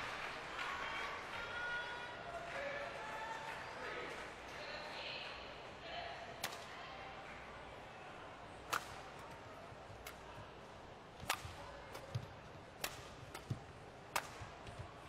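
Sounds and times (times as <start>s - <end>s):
rackets striking shuttlecock: 6.4s - 6.7s, 8.6s - 15.0s.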